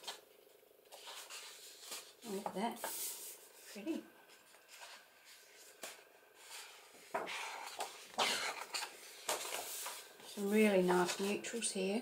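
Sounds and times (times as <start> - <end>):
paper page flipping: 0.0 - 3.7, 4.3 - 11.4.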